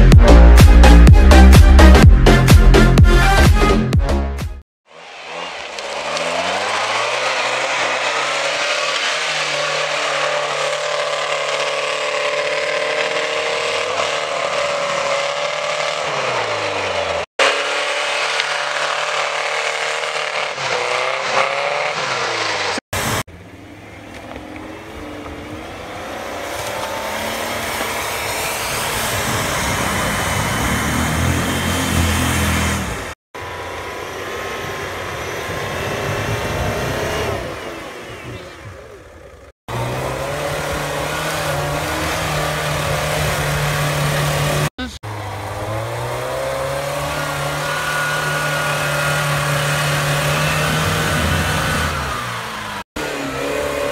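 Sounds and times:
off-road engines revving: 0:04.8 - 0:53.9
tyres churning through snow: 0:04.8 - 0:53.9.

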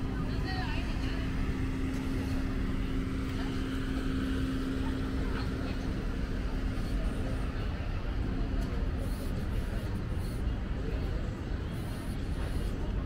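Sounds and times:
engine droning hum: 0:00.0 - 0:13.0
street traffic rumble: 0:00.0 - 0:13.0.

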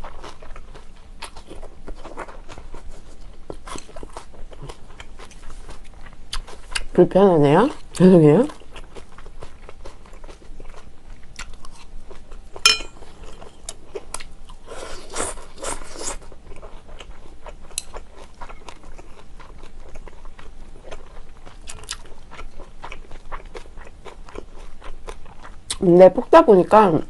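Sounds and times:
chewing and biting noodles: 0:00.0 - 0:06.9, 0:07.7 - 0:12.6, 0:13.2 - 0:25.8
sharp ringing clink: 0:12.7 - 0:13.0.

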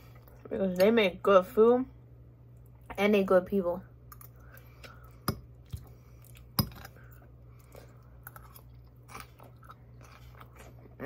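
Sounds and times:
faint low hum: 0:00.0 - 0:11.0
quiet chewing: 0:04.1 - 0:11.0.

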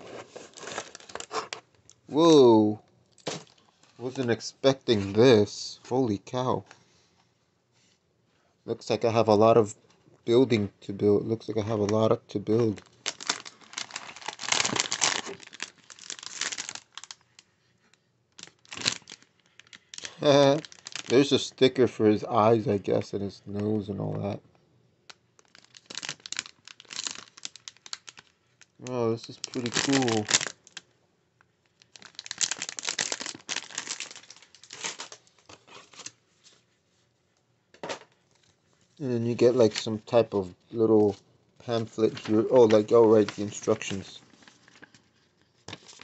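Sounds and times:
packaging crinkling and rustling: 0:00.0 - 0:01.9, 0:11.8 - 0:17.6, 0:18.3 - 0:21.4, 0:25.1 - 0:30.9, 0:31.6 - 0:36.8, 0:39.3 - 0:40.4, 0:41.8 - 0:46.0.

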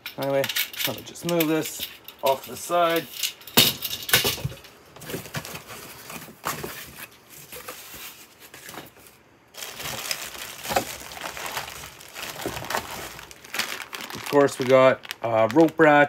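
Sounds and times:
foam and cardboard rustling: 0:04.4 - 0:16.0.

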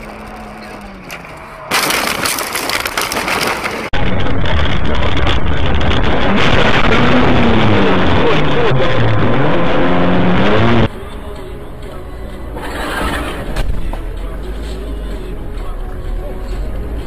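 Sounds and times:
car engine and road noise: 0:00.0 - 0:17.0.

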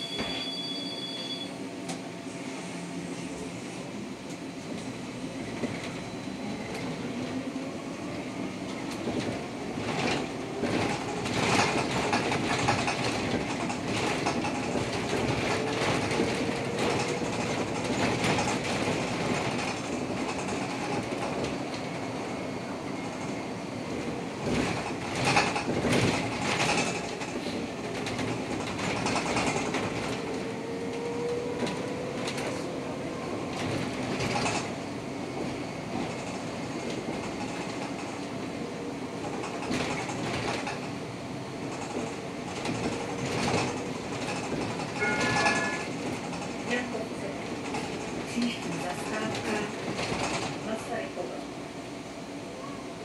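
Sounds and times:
trolleybus running noise: 0:00.0 - 0:53.0.

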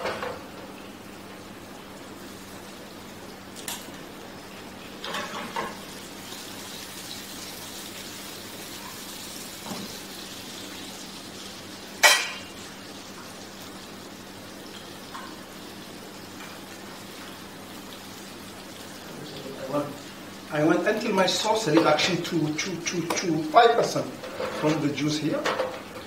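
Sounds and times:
sauce sizzling in pans: 0:00.6 - 0:26.0
pans and utensils clinking: 0:05.0 - 0:05.8, 0:12.0 - 0:12.6, 0:24.2 - 0:26.0
cookware clattering: 0:12.0 - 0:12.5.

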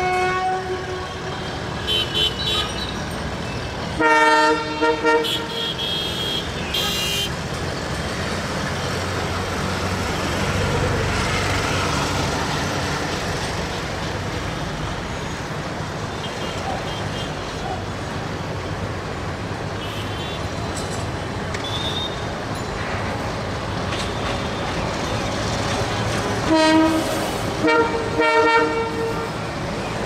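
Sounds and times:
locomotive horn blasts: 0:00.0 - 0:01.3, 0:04.0 - 0:07.3, 0:26.5 - 0:29.4
train engine rumbling: 0:00.0 - 0:30.0.

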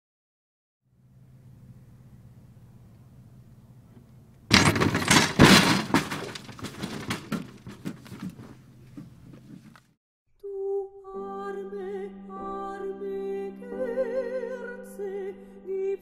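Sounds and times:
loud crash of breaking: 0:04.5 - 0:07.9.

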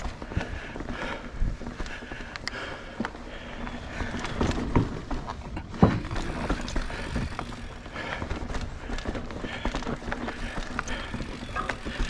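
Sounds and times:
bike tyres on dirt: 0:00.0 - 0:12.0
bike frame knocking and clattering: 0:03.9 - 0:12.0.

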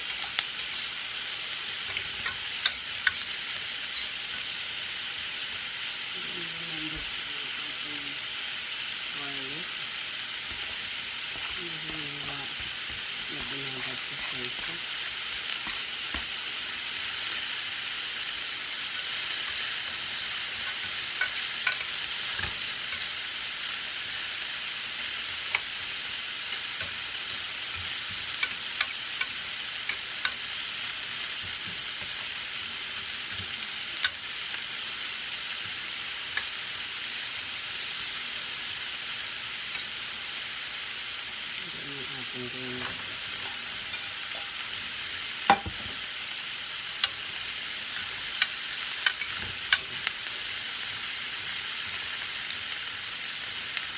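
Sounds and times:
vegetables sizzling in a skillet: 0:00.0 - 0:53.9
metal utensil scraping a pan: 0:42.8 - 0:44.7.

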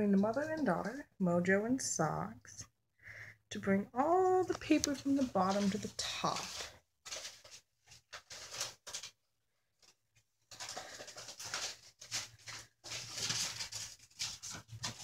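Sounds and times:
shredded paper rustling: 0:04.3 - 0:15.0.

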